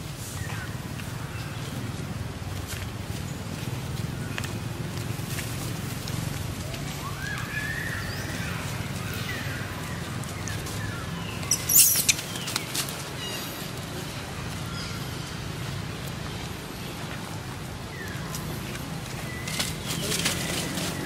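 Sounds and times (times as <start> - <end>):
monkeys squealing: 11.4 - 12.4
rising and falling call: 11.4 - 12.4
sharp cries: 11.5 - 12.4.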